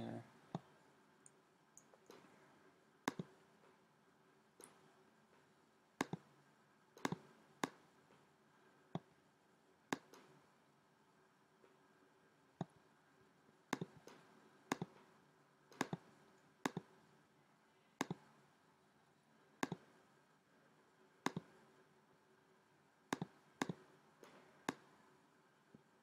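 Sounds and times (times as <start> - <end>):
computer mouse clicking: 3.1 - 3.4, 4.6 - 4.9, 6.0 - 6.3, 7.0 - 7.9, 9.9 - 10.4, 13.7 - 15.1, 15.7 - 17.0, 18.0 - 18.4, 19.6 - 20.0, 21.2 - 21.6, 23.1 - 25.0.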